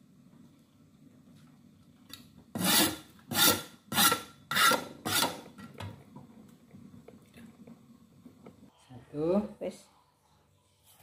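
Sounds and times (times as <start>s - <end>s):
steel cleaver scraping: 2.6s - 5.4s.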